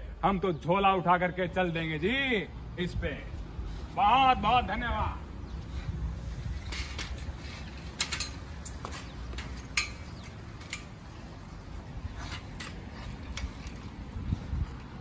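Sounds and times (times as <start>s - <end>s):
bicycle clicks and rattles: 6.5s - 15.0s.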